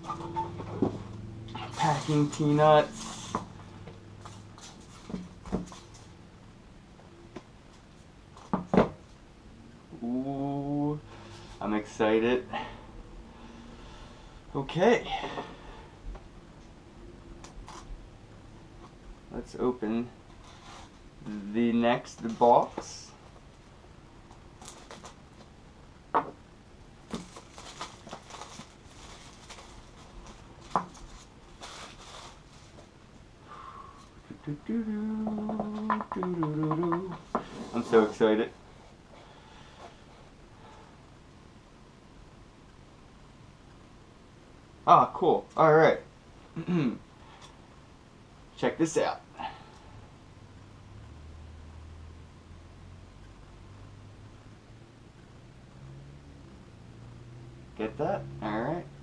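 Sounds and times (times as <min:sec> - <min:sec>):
cardboard box rustling in packing peanuts: 0:27.1 - 0:32.8.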